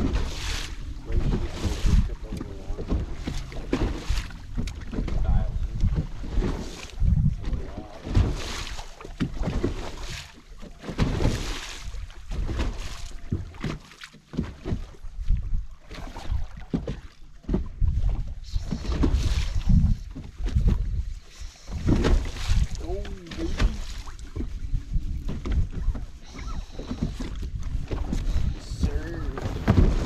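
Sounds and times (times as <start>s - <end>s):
wind buffeting microphone: 0.0s - 8.6s, 15.0s - 30.0s
water slapping against boat hull: 0.0s - 30.0s.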